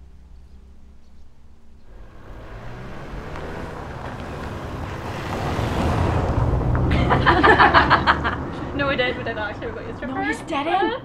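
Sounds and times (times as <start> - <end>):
road vehicle rushing: 0.0 - 11.0.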